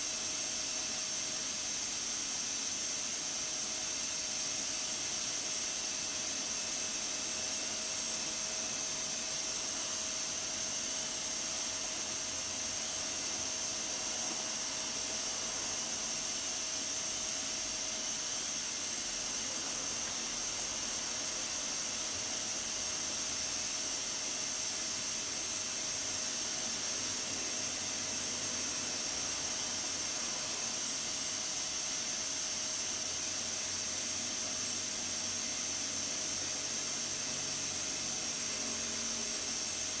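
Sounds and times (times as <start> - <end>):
steam hissing from valve: 0.0 - 40.0.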